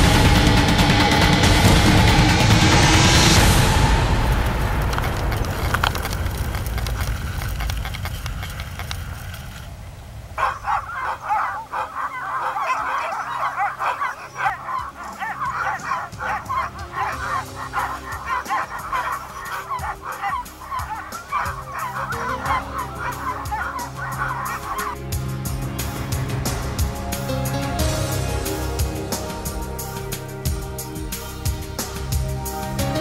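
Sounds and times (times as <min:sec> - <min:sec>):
music: 0:00.0 - 0:06.5, 0:12.2 - 0:33.0
dogs barking and yelping: 0:10.4 - 0:25.0.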